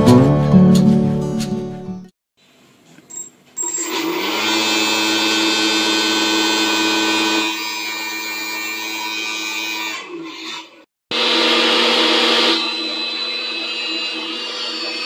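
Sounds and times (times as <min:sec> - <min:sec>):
vacuum cleaner motor whine: 0:03.7 - 0:10.2, 0:11.1 - 0:15.0.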